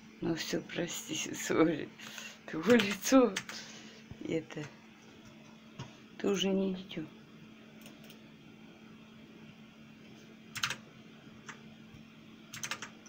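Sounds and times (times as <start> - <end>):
computer keyboard key presses: 10.6 - 10.8, 12.5 - 12.9.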